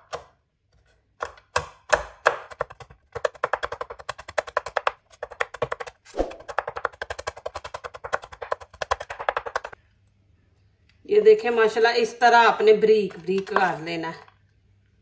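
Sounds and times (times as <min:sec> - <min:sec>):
knife chopping on wooden board: 0:01.2 - 0:02.8.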